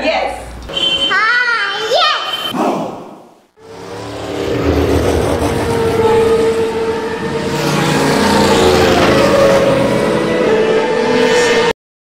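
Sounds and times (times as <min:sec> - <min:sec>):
engine-like drone with low rumble: 0:03.6 - 0:10.1
steady tones: 0:03.6 - 0:10.5.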